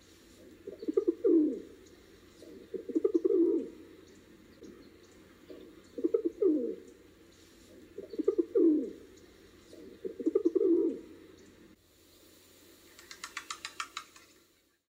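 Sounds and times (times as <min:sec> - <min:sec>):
pigeon cooing: 0:00.3 - 0:11.6
rapid clicks: 0:12.9 - 0:14.4.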